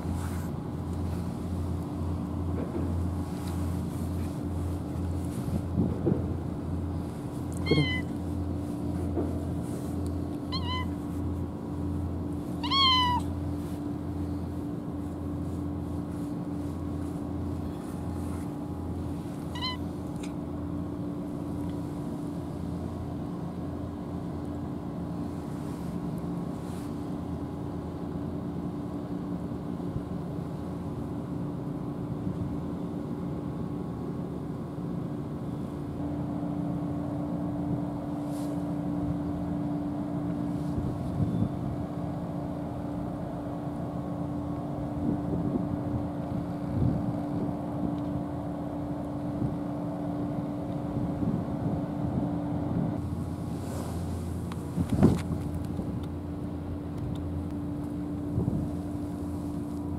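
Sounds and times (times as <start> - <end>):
low engine drone: 0.0 - 59.9
cat meowing: 7.6 - 8.2, 10.5 - 11.0, 12.6 - 13.4, 19.5 - 19.9.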